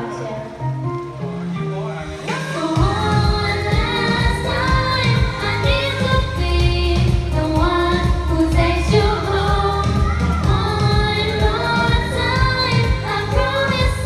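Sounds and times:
girl singing karaoke: 0.0s - 0.9s, 2.2s - 14.0s
pop backing track: 0.0s - 14.0s.

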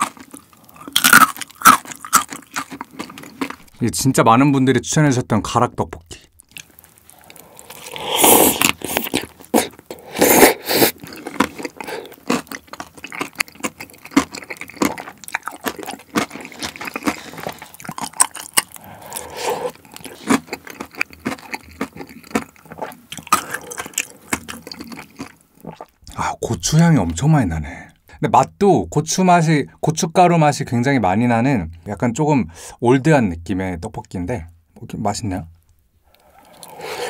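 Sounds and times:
wet chewing with mouth clicks: 0.0s - 3.8s, 6.4s - 26.2s, 36.1s - 37.0s
loud slurps: 7.2s - 12.3s, 18.6s - 20.5s, 36.2s - 37.0s.

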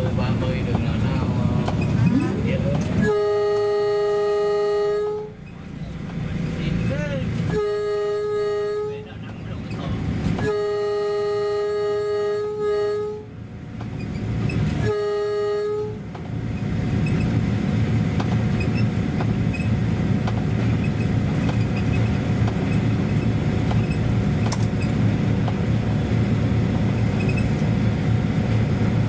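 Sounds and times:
train rumbling: 0.0s - 29.0s
train horn blowing: 3.0s - 5.4s, 7.4s - 9.2s, 10.4s - 13.4s, 14.7s - 16.1s.

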